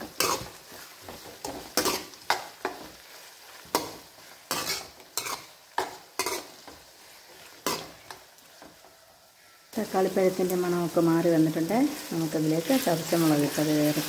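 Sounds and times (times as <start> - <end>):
spatula scraping metal wok: 0.0 - 8.8
vegetables sizzling in oil: 0.0 - 14.0.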